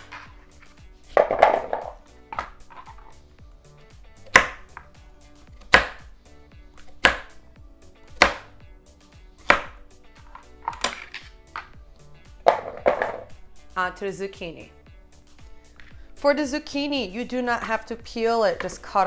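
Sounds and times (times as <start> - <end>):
knife chopping carrots on board: 4.2 - 5.0, 5.6 - 6.1, 6.8 - 7.4, 8.1 - 8.5, 9.4 - 11.7.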